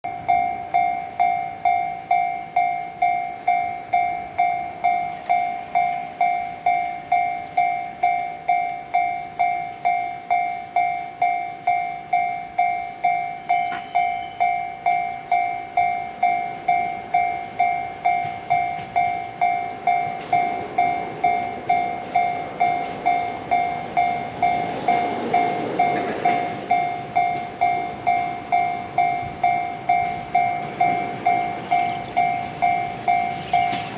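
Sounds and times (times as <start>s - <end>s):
level crossing alarm clanging: 0.0s - 33.9s
electric train running: 0.1s - 33.9s.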